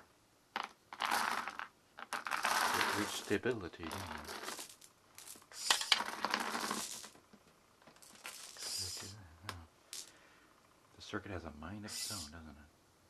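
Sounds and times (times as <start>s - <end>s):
marbles clattering and clinking: 0.6s - 7.2s, 7.9s - 9.1s, 9.9s - 10.2s.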